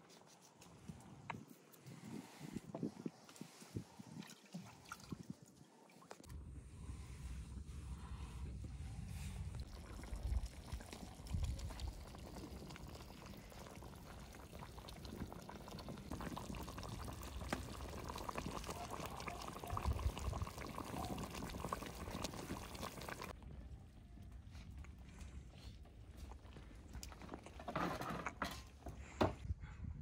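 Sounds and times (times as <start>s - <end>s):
liquid pouring into a pot: 9.6s - 23.4s.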